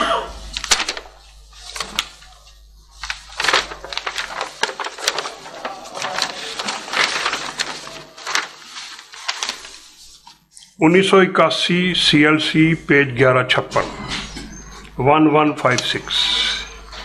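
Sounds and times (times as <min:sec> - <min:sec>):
paper rustling and crackling: 0:00.4 - 0:10.8.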